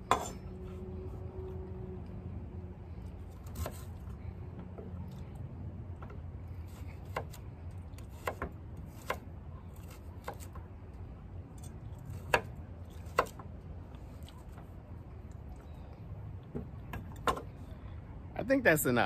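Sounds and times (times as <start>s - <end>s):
knife chopping on wooden board: 7.0s - 7.4s, 8.0s - 9.2s, 9.8s - 10.6s, 12.1s - 13.4s.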